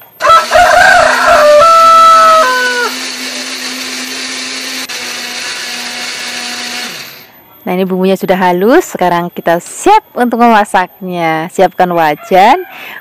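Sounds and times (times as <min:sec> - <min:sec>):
blender grinding: 0:00.4 - 0:07.3.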